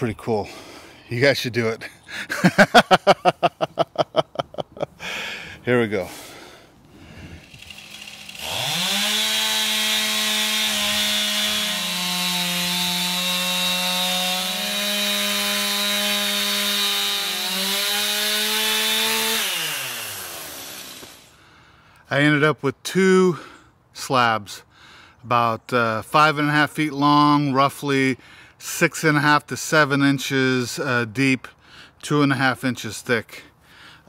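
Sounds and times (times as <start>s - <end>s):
chainsaw cutting through a log: 7.0s - 21.4s.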